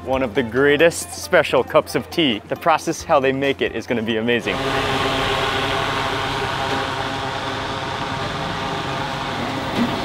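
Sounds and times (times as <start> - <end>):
low motor hum: 4.4 - 10.0.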